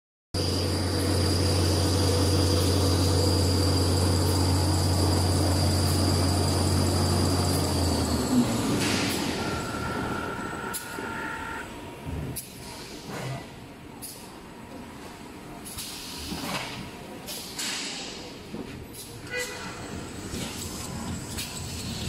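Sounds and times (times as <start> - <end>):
machine high whine: 0.4 - 11.8
machine low drone: 0.4 - 11.8
steady tone: 0.4 - 11.8.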